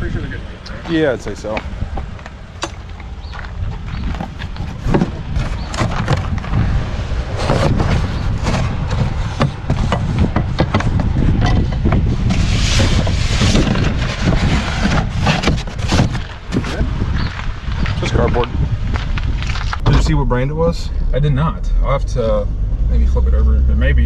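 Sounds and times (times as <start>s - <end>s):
steady low rumble: 0.0s - 24.0s
knocks and clatters of handling: 1.5s - 6.6s.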